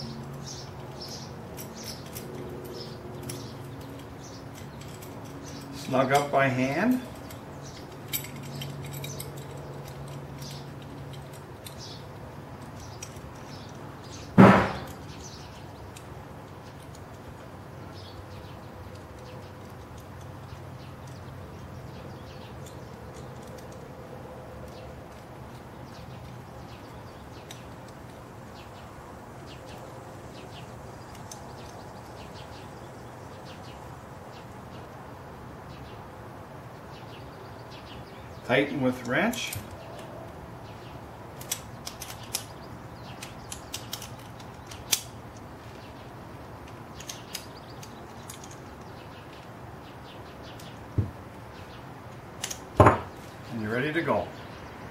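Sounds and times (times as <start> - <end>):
metal parts clicking: 0.2 - 17.6, 22.2 - 23.9, 29.5 - 32.4, 41.3 - 46.0, 46.6 - 49.6, 52.1 - 53.4
loud knock: 14.4 - 14.9.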